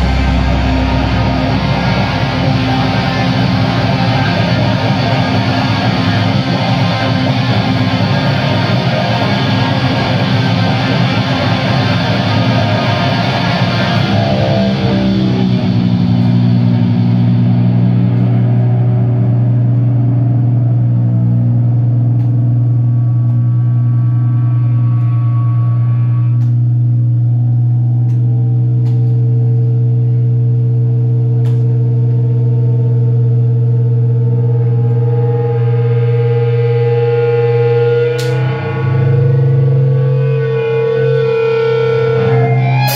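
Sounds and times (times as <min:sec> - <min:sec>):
higher held guitar note: 0:00.0 - 0:21.4, 0:34.4 - 0:42.9
distorted electric guitars and bass: 0:00.0 - 0:42.9.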